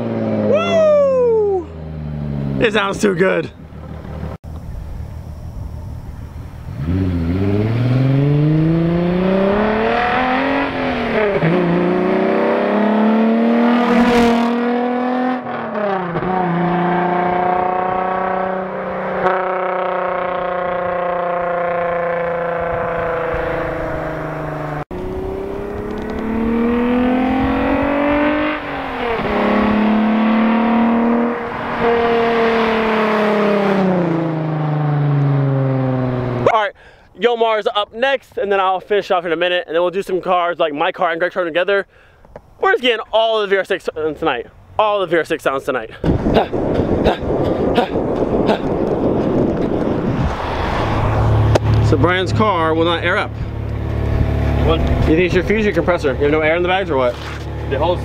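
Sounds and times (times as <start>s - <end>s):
car engine accelerating through gears: 6.7s - 36.4s, 46.7s - 58.0s.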